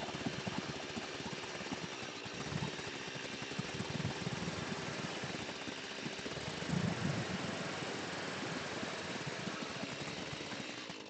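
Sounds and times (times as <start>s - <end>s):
chainsaw engine idling: 0.0s - 11.0s.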